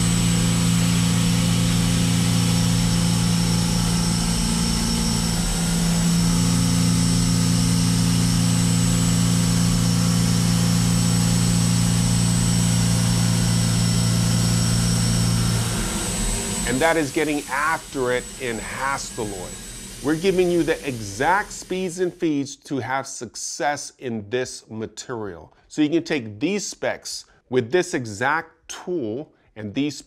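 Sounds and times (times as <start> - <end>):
milling machine cutting metal: 0.0 - 22.2
thin high whine: 0.0 - 22.3.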